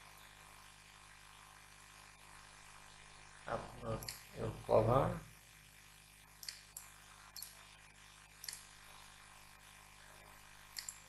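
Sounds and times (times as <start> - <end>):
low steady hum: 0.0 - 11.0
computer mouse clicks: 6.4 - 7.6, 8.4 - 8.7, 10.7 - 11.0.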